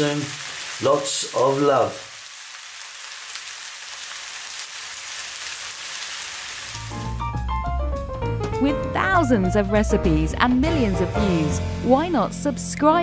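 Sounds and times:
pasta sizzling in frying pan: 0.0 - 7.2.

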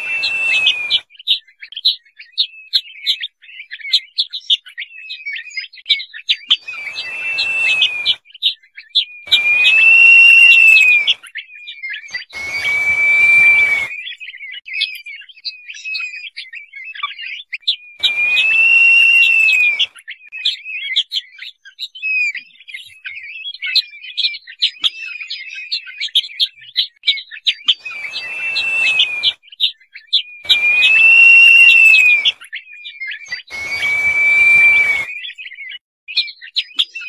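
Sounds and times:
quick high chirps: 0.0 - 1.0, 6.6 - 8.2, 9.3 - 11.2, 12.1 - 13.9, 18.0 - 19.9, 27.8 - 29.4, 30.4 - 32.4, 33.3 - 35.2
partridge whistling calls: 0.0 - 1.3, 6.5 - 8.5, 9.3 - 11.2, 12.0 - 14.2, 18.0 - 20.0, 27.7 - 29.6, 30.4 - 32.6, 33.2 - 35.5.

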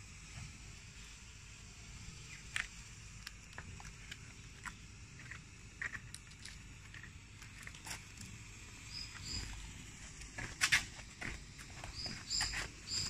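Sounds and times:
smoke firework hissing: 0.0 - 13.0
soft crackles and clicks: 2.3 - 8.4.

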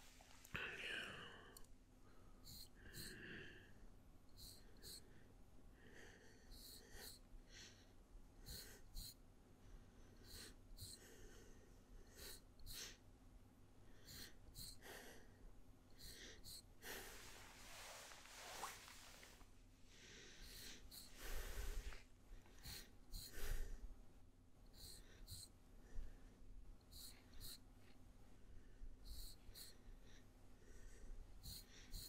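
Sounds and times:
razor scraping strokes: 16.0 - 19.4, 20.4 - 22.0, 26.9 - 27.6, 29.1 - 29.8.

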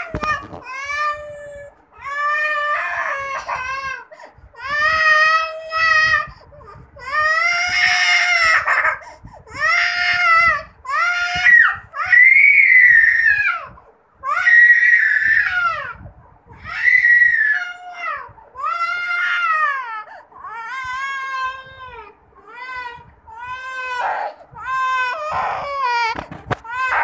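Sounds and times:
toddler crying: 0.0 - 6.3, 7.0 - 27.0.

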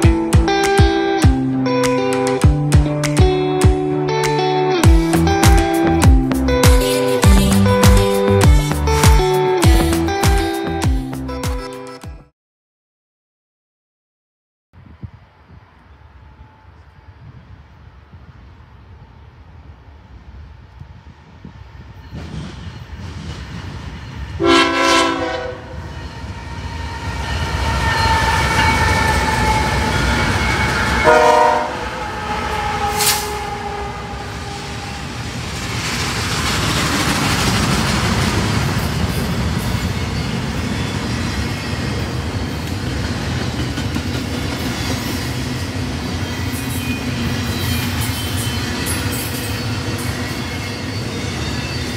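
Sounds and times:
train cars rumbling on rails: 20.6 - 51.9
train horn blasts: 24.4 - 25.9, 28.0 - 35.2.

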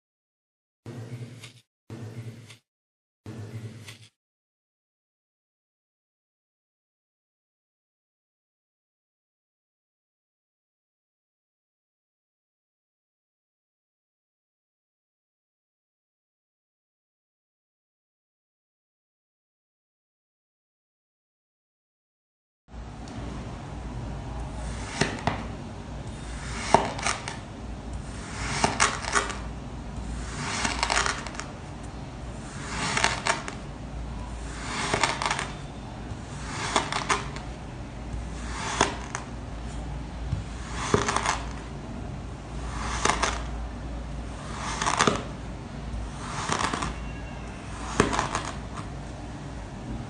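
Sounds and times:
knife cutting through sand: 28.0 - 29.2, 30.1 - 31.4, 32.4 - 33.5, 42.6 - 43.4.

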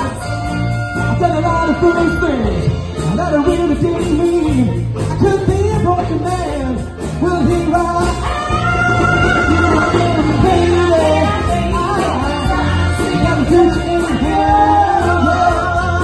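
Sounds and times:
horn section: 0.0 - 4.3, 7.4 - 16.0
bass: 0.0 - 16.0
drums: 0.0 - 16.0
person singing: 5.1 - 16.0.

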